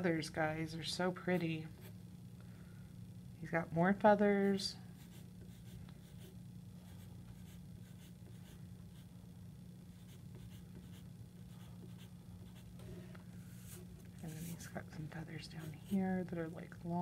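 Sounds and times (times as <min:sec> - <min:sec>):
steady low hum: 0:00.0 - 0:17.0
pencil scratching on paper: 0:05.0 - 0:09.0, 0:10.0 - 0:12.7.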